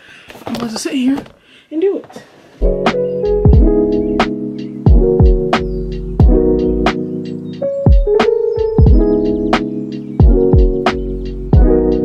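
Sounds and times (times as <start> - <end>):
held keyboard chords: 2.6 - 12.0
deep kick drum: 3.4 - 3.9, 4.9 - 5.5, 6.2 - 6.5, 8.8 - 9.2, 10.2 - 10.8, 11.6 - 11.8.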